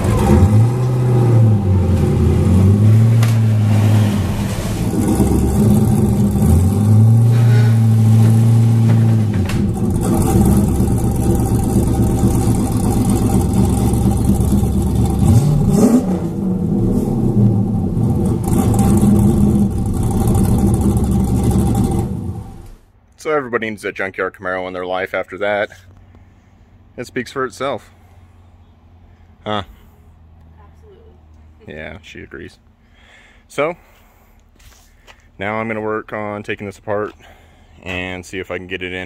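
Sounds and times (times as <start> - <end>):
car engine revving: 0.0 - 22.8.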